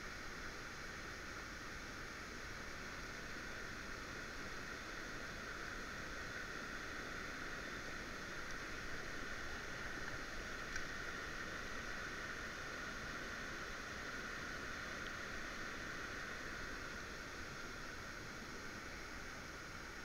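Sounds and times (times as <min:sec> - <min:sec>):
light rain hiss: 0:00.0 - 0:20.0
running river water: 0:00.0 - 0:20.0.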